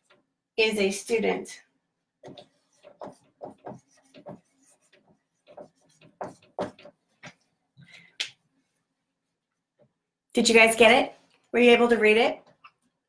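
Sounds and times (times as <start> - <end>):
marker squeaking on whiteboard: 2.2 - 7.5.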